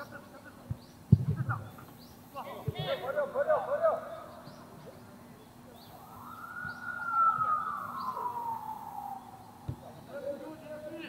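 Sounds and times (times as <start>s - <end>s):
emergency siren wailing: 5.9s - 9.6s.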